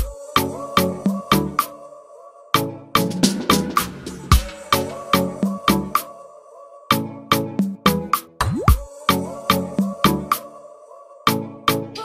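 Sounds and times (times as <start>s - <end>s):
background music with drum beat: 0.0s - 1.7s, 3.0s - 6.1s, 6.9s - 10.5s.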